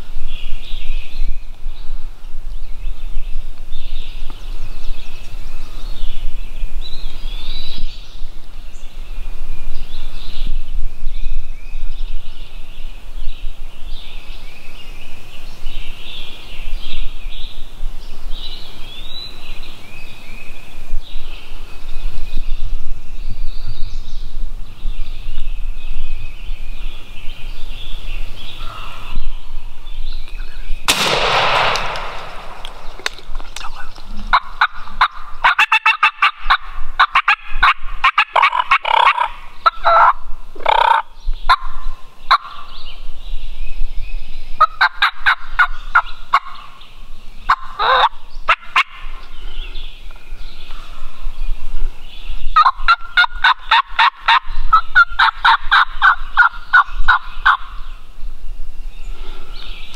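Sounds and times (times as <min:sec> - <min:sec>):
sudden loud noise: 0:30.9 - 0:33.9.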